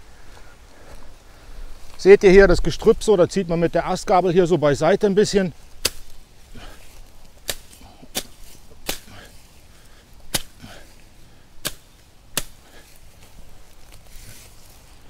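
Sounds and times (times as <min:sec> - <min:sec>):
machete slashing through weeds: 0:05.8 - 0:09.5, 0:10.3 - 0:10.9, 0:11.6 - 0:13.2.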